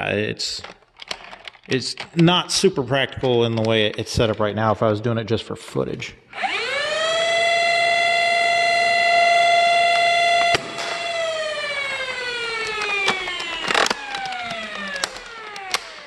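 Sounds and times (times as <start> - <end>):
flywheel motors whining: 6.4 - 16.0.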